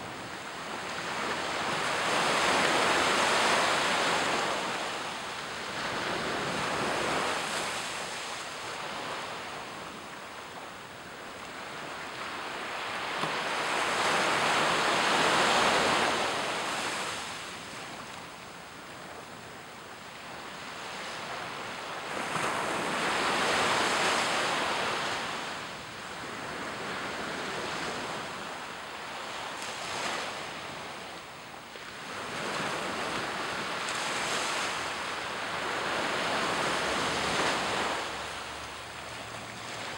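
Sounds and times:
small waves breaking on beach: 0:00.0 - 0:39.9.

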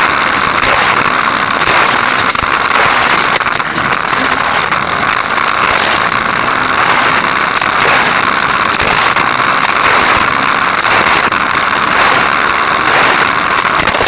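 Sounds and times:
small electric motor running: 0:00.0 - 0:14.0.

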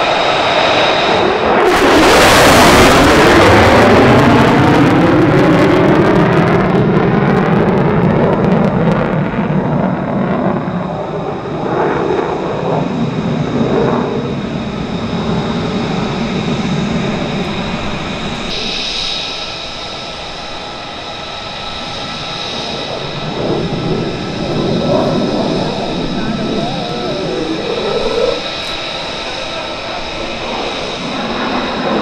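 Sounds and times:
jet afterburner roar: 0:00.0 - 0:32.0
jet engine crackling: 0:00.2 - 0:32.0.

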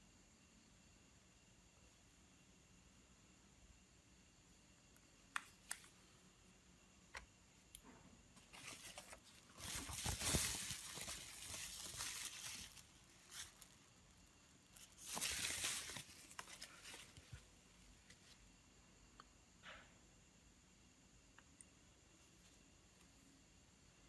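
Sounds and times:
plastic sheet crinkling: 0:08.4 - 0:14.0, 0:14.6 - 0:17.4.

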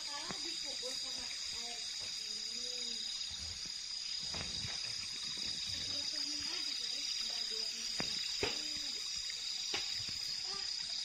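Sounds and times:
night insects trilling: 0:00.0 - 0:11.0.

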